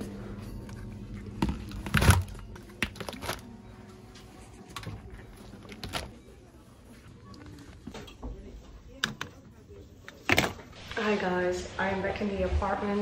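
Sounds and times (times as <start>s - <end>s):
plastic bottles clattering: 1.2s - 3.6s, 4.7s - 6.2s.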